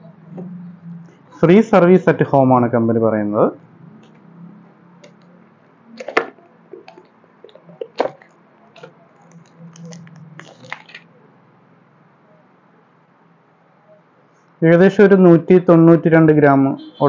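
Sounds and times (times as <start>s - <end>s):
plastic crinkling: 5.9s - 11.2s.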